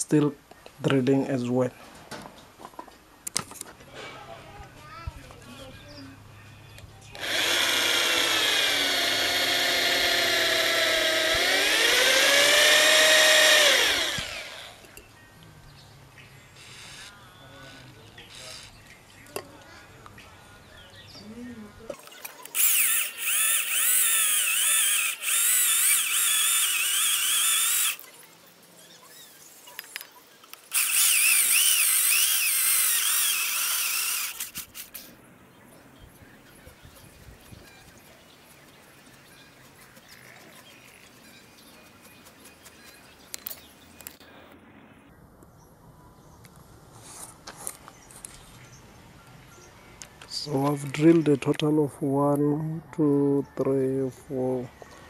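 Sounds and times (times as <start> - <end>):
electric drill drilling into steel: 7.2 - 14.9, 22.5 - 28.0, 30.7 - 34.9.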